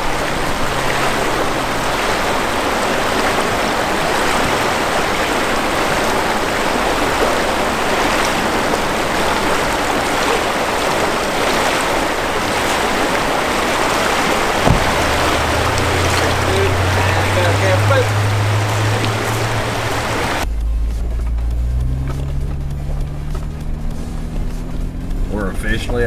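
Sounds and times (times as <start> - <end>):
river rushing over riffles: 0.0 - 20.5.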